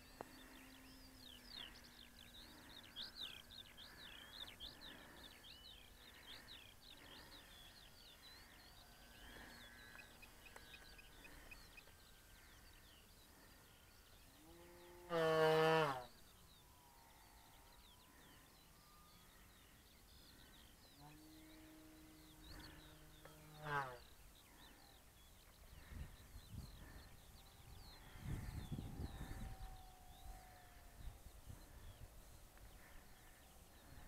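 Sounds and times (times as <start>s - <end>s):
bird chirps: 0.0s - 15.1s.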